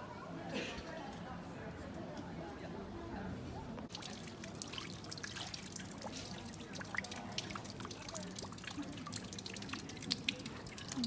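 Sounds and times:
fountain water trickling into basin: 3.9s - 11.0s.

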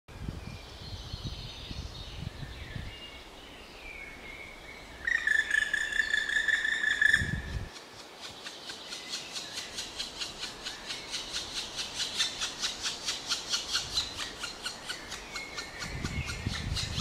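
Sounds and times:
faint songbirds singing: 0.1s - 17.0s
woodpecker pulsed call: 5.0s - 17.0s.

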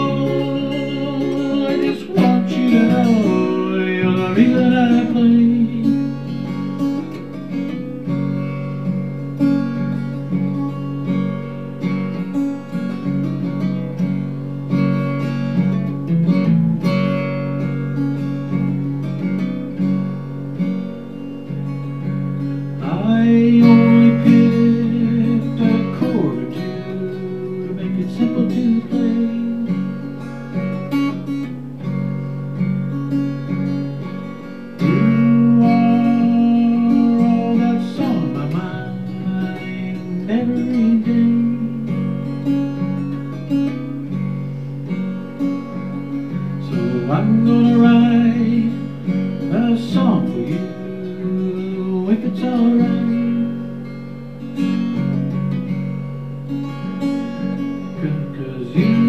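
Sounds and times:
acoustic guitar strummed: 0.0s - 59.0s.

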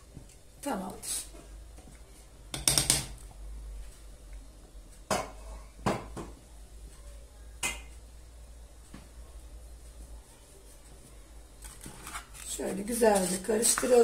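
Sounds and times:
spatula scraping a pot: 11.6s - 14.0s.

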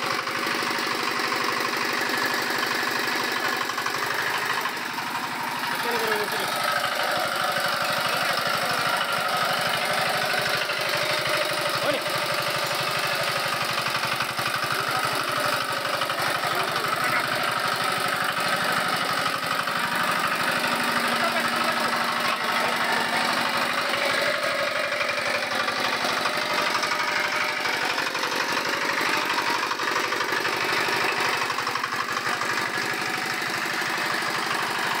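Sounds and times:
small engine knocking under load: 0.0s - 35.0s.

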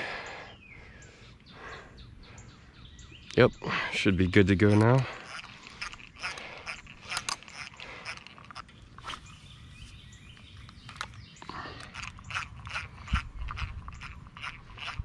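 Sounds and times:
fishing reel clicking: 4.7s - 9.3s, 10.7s - 15.0s.

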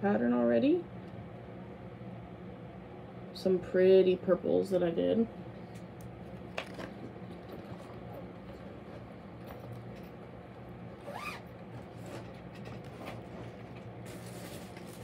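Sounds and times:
faint steady hum: 0.0s - 15.0s
plastic bag handling: 11.1s - 15.0s.

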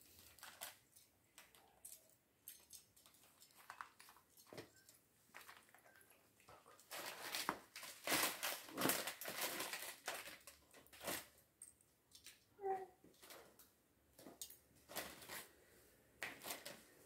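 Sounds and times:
plastic bag crinkling: 0.0s - 2.1s, 6.7s - 11.4s, 14.8s - 15.5s, 16.2s - 17.0s.

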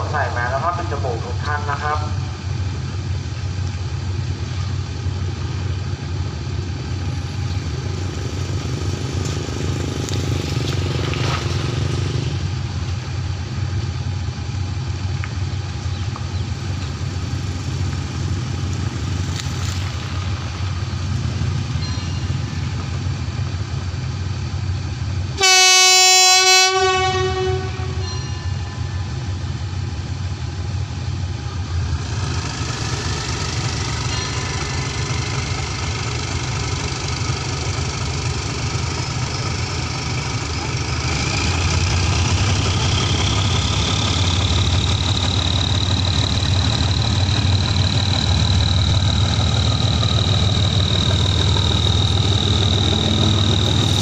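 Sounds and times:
diesel locomotive idling: 0.0s - 54.0s
locomotive horn blast: 25.4s - 29.2s.

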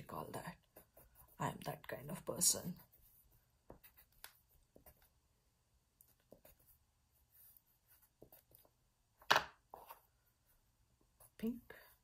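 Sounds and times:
pencil scratching on paper: 0.0s - 5.2s, 6.1s - 8.8s.

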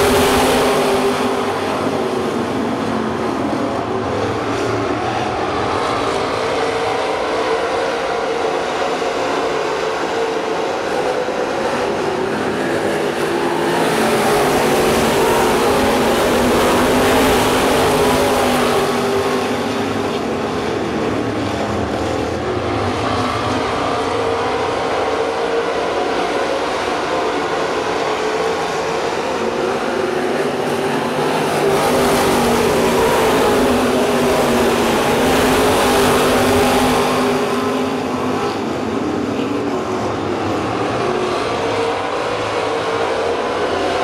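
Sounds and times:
race car engines at high revs: 0.0s - 44.0s.

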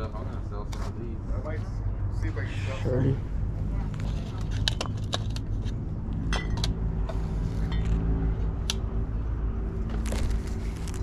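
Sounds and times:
low engine hum: 0.0s - 11.0s
glass and ceramic clinks: 6.3s - 6.6s.

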